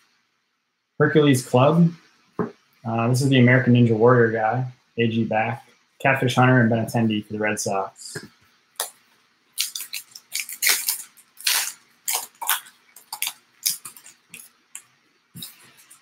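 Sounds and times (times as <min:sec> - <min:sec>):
wrapper being torn and crinkled: 0:09.5 - 0:14.6.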